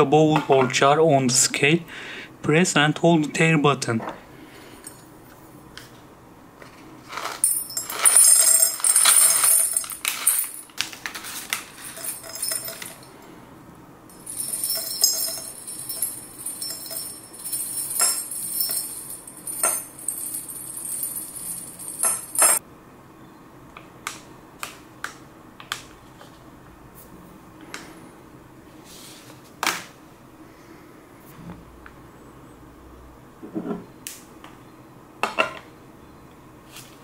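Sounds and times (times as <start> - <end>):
cloves rattling into glass jar: 7.1 - 10.7, 11.7 - 13.1, 14.1 - 22.6.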